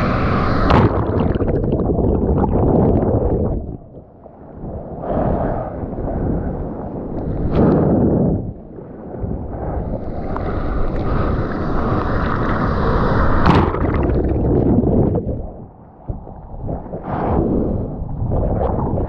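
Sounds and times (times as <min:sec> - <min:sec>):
whitewater rushing and sloshing: 0:09.6 - 0:17.2.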